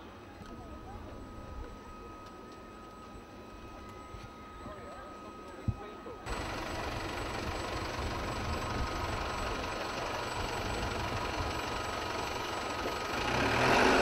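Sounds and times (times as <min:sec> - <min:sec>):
high turbine whine: 0:00.0 - 0:14.0.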